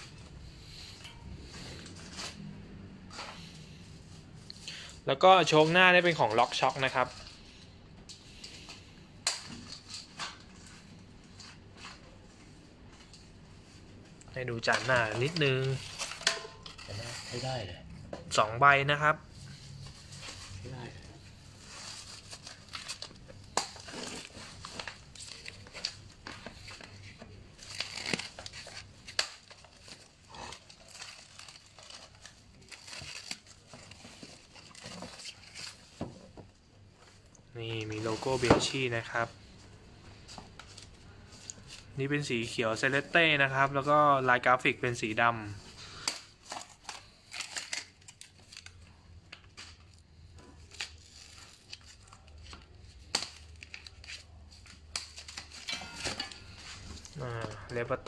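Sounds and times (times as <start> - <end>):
foam wrap and cardboard rustling: 0.0 - 7.7, 9.4 - 39.6, 40.2 - 58.0
plastic packaging crinkling: 20.0 - 36.0, 45.9 - 49.1.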